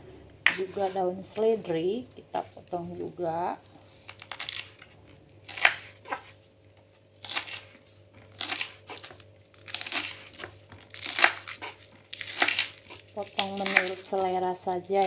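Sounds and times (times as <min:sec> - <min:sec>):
knife slicing spring onions: 0:08.4 - 0:14.3.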